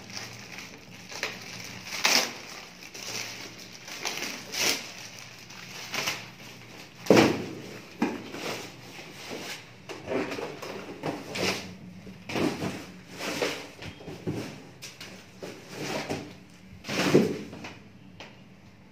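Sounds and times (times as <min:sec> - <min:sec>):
plastic wrapping crinkling: 0:00.0 - 0:09.7.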